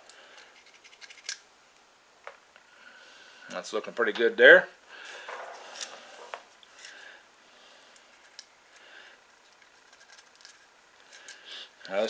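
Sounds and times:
small parts clicking: 0.0 - 1.4, 7.9 - 12.0.

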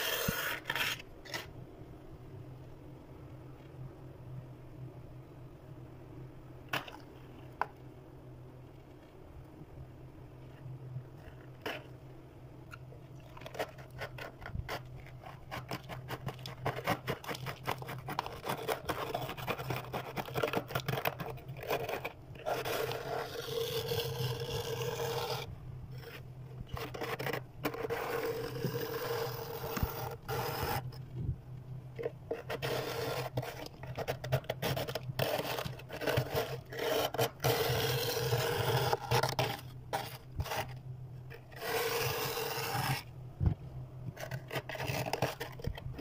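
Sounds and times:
scraper scraping freezer frost: 0.0 - 1.5, 11.2 - 12.0, 13.4 - 31.0, 32.0 - 43.1, 44.1 - 46.0
steady low hum: 0.0 - 46.0.

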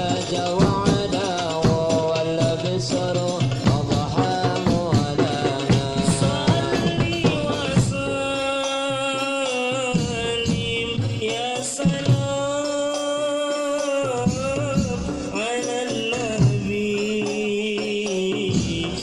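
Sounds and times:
frame drum strokes: 0.0 - 8.5
person singing devotional song: 0.0 - 19.0.

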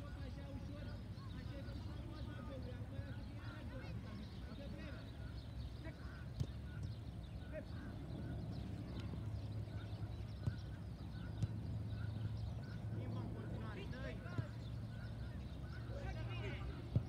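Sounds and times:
football kick thuds: 10.3 - 11.6.

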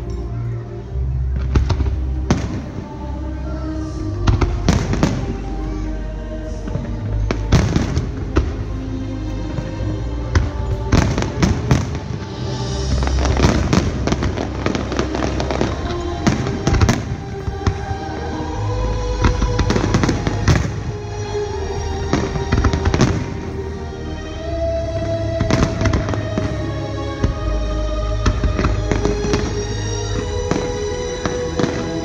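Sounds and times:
music with long held notes: 0.0 - 32.0
fireworks bangs and crackles: 1.3 - 2.9, 4.3 - 5.4, 6.6 - 8.7, 10.3 - 18.3, 19.2 - 21.0, 22.1 - 23.6, 25.0 - 26.6, 28.2 - 32.0.

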